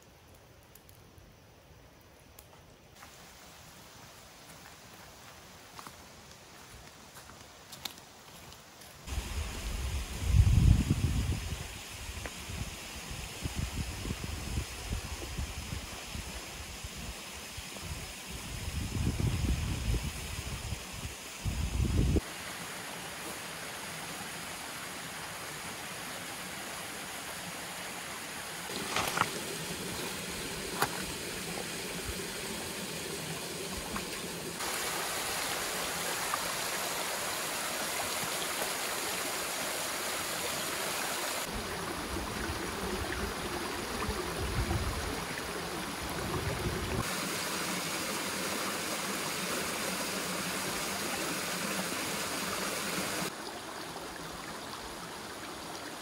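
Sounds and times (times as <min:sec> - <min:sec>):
waterfall splashing over rocks: 0:22.2 - 0:56.0.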